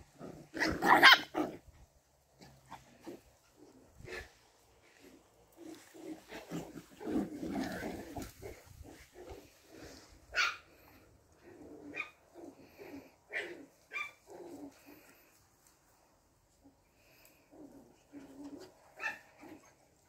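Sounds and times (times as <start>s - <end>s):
puppies playing roughly: 0.0s - 20.0s.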